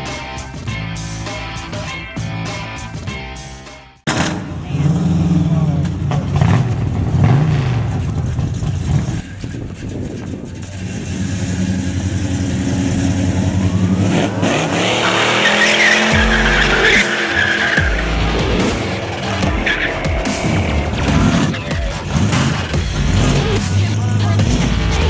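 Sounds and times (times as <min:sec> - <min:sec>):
car engine revving hard: 0:04.1 - 0:09.2, 0:10.7 - 0:25.0
tyres screeching: 0:08.6 - 0:25.0.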